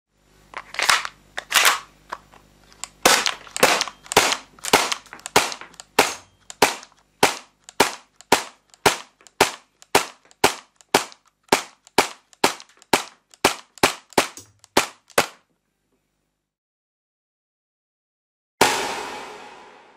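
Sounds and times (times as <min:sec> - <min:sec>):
airsoft pistol shots: 0:03.0 - 0:15.4.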